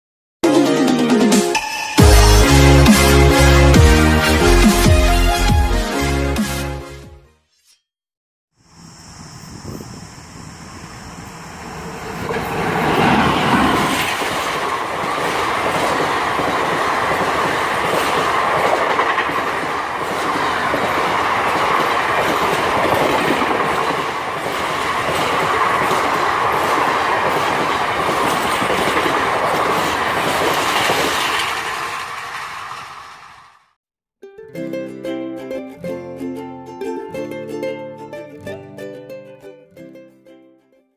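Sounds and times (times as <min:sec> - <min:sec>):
electric locomotive passing: 0:08.7 - 0:33.8
wheels clacking over rail joints: 0:12.0 - 0:33.6.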